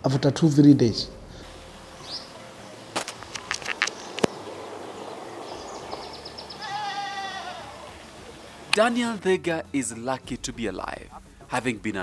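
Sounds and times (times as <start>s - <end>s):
bleat-like animal call: 6.5s - 8.0s.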